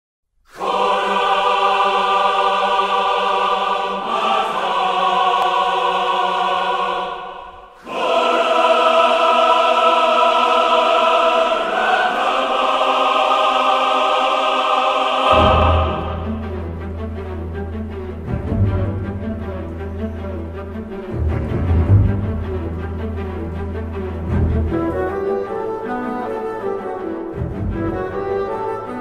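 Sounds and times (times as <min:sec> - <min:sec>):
choir singing held chords: 0:00.5 - 0:20.5.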